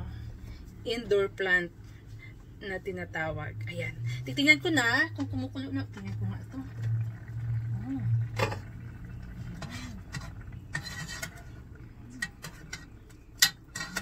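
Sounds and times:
pot lids and spoon clinking: 8.3 - 8.7, 9.5 - 14.0
spoon stirring scrape: 9.4 - 14.0.

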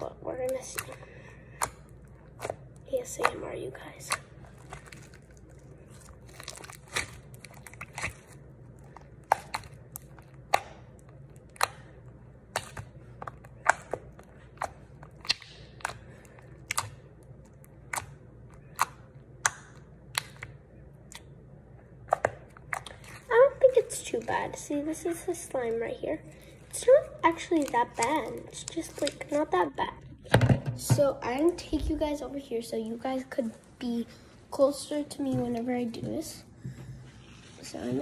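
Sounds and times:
slime popping and clicking: 12.5 - 16.0, 16.6 - 21.3.

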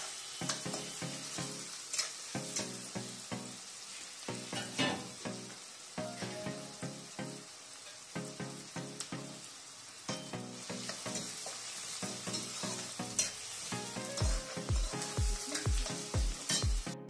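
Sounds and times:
onions sizzling in oil: 0.0 - 17.0
background music: 0.4 - 17.0
deep bass beat: 14.2 - 17.0.

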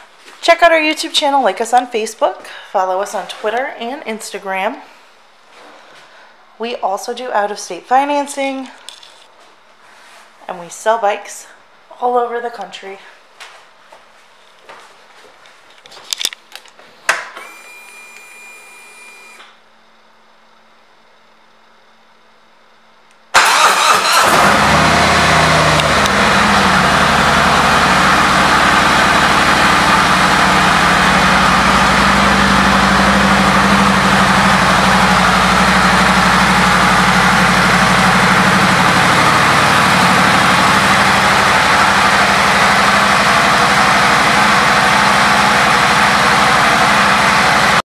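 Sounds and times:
motorcycle engine starting and idling: 23.3 - 47.8.

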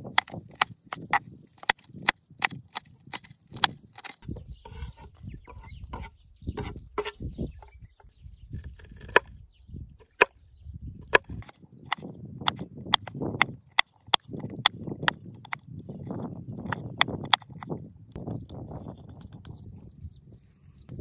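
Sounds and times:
knife chopping on wooden board: 11.1 - 15.6.

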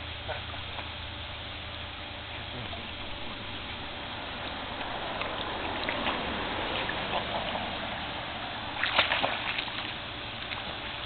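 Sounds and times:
pool water splashing: 2.8 - 11.0.

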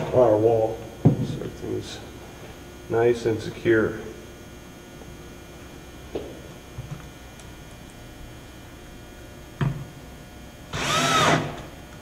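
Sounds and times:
steady low hum: 0.0 - 12.0
cordless drill whirring: 10.7 - 11.7.

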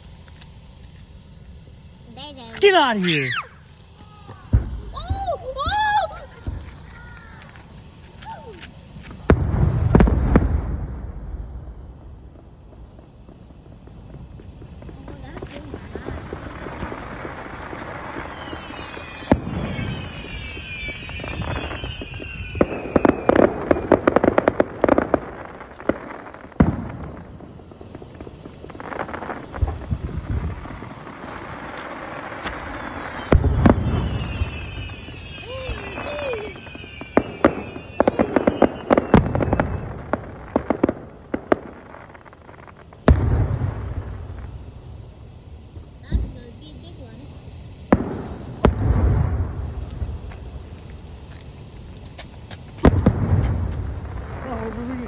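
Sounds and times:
crackling firework pops: 0.0 - 55.0
firework bangs: 0.0 - 55.0
firework whistles falling in pitch: 2.1 - 10.8, 15.0 - 45.1.

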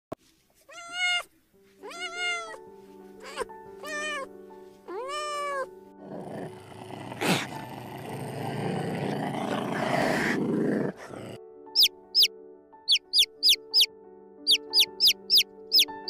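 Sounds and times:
soft background music: 0.2 - 16.0
kitten meowing: 0.7 - 2.6, 3.2 - 4.3, 4.9 - 5.7, 12.9 - 13.9, 14.5 - 16.0
big cat growling and roaring: 6.0 - 11.4
chick peeping: 11.8 - 12.3, 12.9 - 13.9, 14.5 - 15.9.

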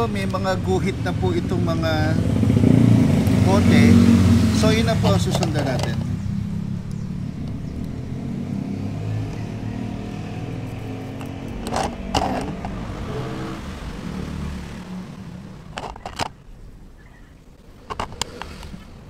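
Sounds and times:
vehicle engine running: 0.0 - 16.3
sharp clicks: 6.8 - 8.0.

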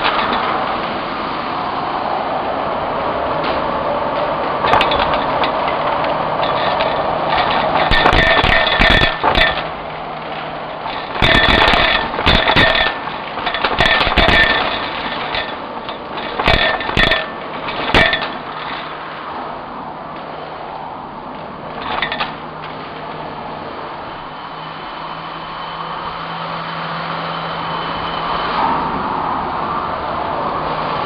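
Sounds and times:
debris rattling up vacuum tube: 0.0 - 0.5, 4.6 - 19.1, 21.7 - 22.4.

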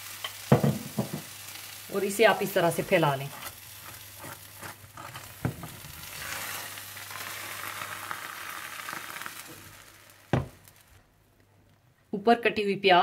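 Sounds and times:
food sizzling in butter: 0.0 - 11.0
knock: 0.5 - 1.2, 10.3 - 10.6.

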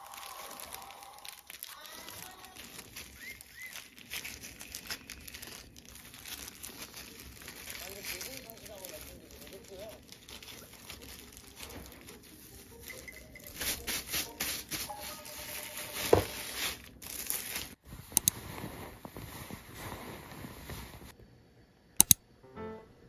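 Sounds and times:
plastic gloves crinkling: 0.0 - 21.1
sharp clicks: 18.2 - 18.4, 22.0 - 22.2.

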